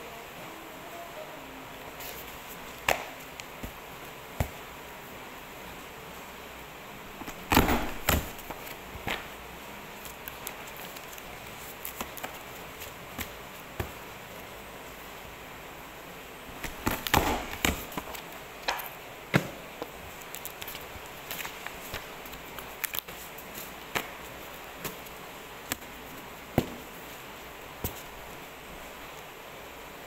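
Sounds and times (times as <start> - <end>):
paper stack knocks and rustles: 7.2 - 9.3, 16.6 - 18.2.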